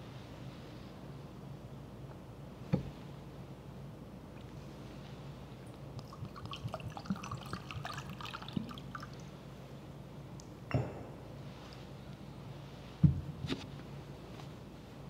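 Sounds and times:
steady low hum: 0:00.0 - 0:15.0
trickle of liquid: 0:05.6 - 0:09.4.

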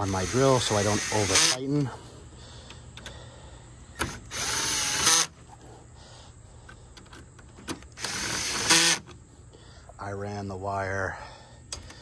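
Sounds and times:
power drill driving bolts: 0:00.0 - 0:01.6, 0:04.0 - 0:05.3, 0:07.6 - 0:09.1.

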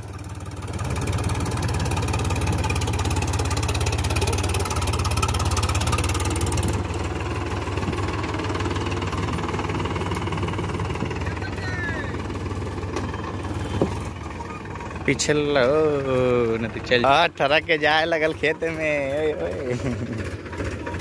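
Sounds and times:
tractor diesel engine under load: 0:00.0 - 0:21.0.

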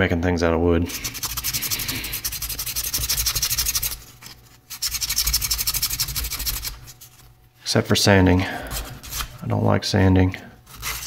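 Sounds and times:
sandpaper rubbing wood: 0:00.9 - 0:07.2, 0:10.7 - 0:11.0.

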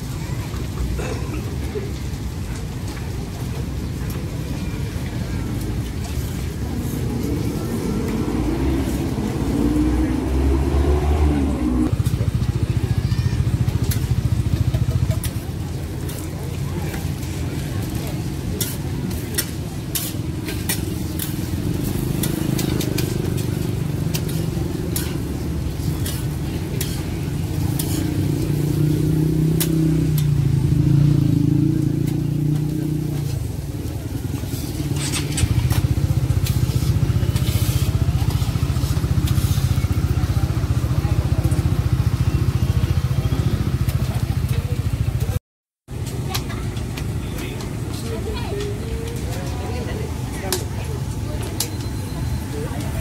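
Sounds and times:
crowd voices: 0:00.0 - 0:53.0
food sizzling and frying: 0:00.1 - 0:45.2
clicks and clatter: 0:34.4 - 0:38.5.

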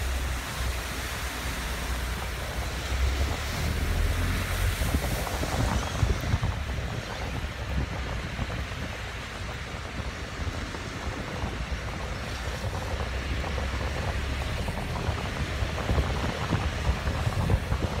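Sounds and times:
tyres hissing through water: 0:00.0 - 0:07.8.

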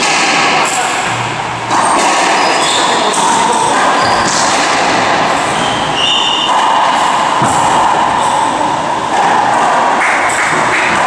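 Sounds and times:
racquetball hits: 0:00.0 - 0:11.0
steady loud hiss: 0:00.0 - 0:11.0
shoes squeaking on hardwood floor: 0:04.0 - 0:04.4.

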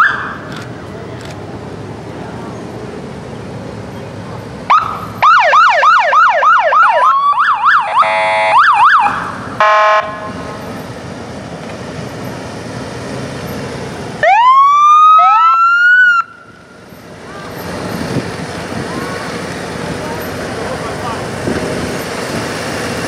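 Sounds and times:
siren yelp and warble: 0:04.7 - 0:10.0, 0:14.2 - 0:16.3
siren wail: 0:04.7 - 0:10.2, 0:14.2 - 0:16.5.

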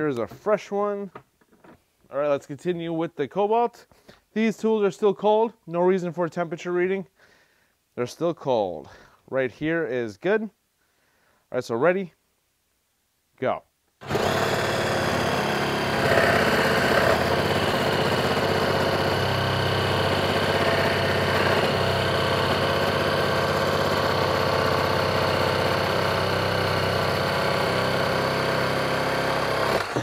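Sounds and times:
reciprocating saw cutting wood: 0:14.0 - 0:30.0.

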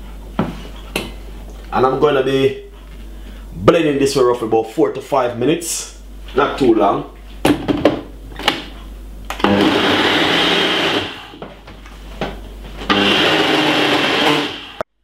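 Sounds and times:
blender running: 0:09.3 - 0:11.4, 0:12.8 - 0:14.9.

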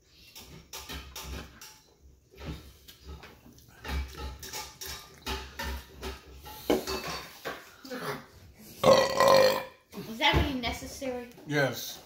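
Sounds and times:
dishes and cutlery clinking: 0:00.2 - 0:07.8.

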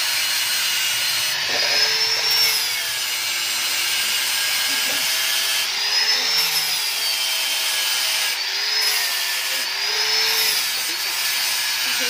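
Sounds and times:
angle grinder cutting metal: 0:00.0 - 0:12.0.

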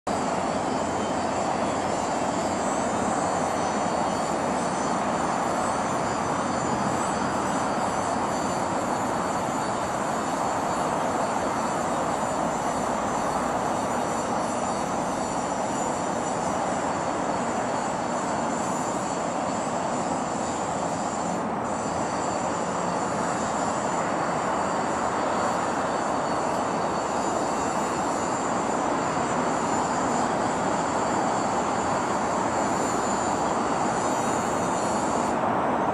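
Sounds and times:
distant city traffic roar: 0:00.1 - 0:35.9.

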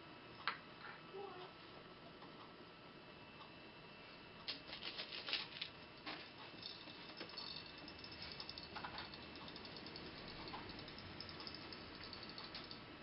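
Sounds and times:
nuts and washers clicking: 0:06.6 - 0:12.8.

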